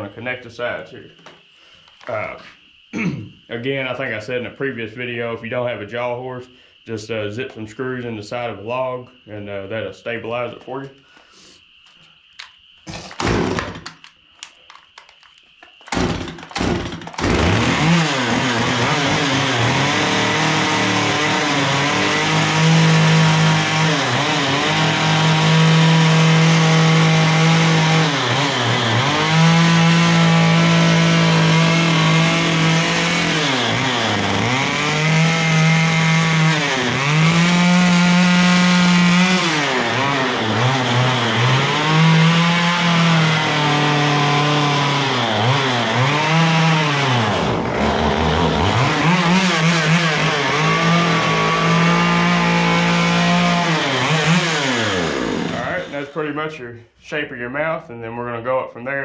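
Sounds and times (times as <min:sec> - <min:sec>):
chainsaw cutting log: 0:12.9 - 0:14.0, 0:15.8 - 0:56.1.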